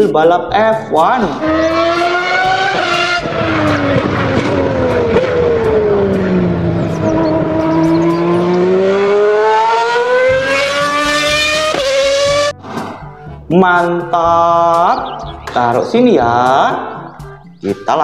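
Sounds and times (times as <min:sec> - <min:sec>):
race car engine revving: 0:01.2 - 0:12.8.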